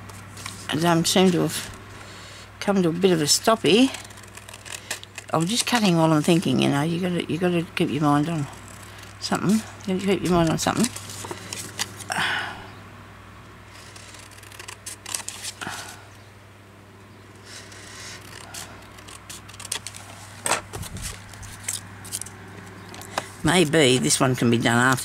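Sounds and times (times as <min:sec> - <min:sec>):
paper rustling: 0:00.0 - 0:02.1, 0:03.0 - 0:06.6, 0:08.2 - 0:12.1, 0:13.7 - 0:16.0, 0:17.5 - 0:22.3
scissors cutting paper: 0:03.0 - 0:06.5, 0:08.2 - 0:12.1, 0:13.7 - 0:15.6, 0:17.5 - 0:20.2, 0:20.8 - 0:22.3.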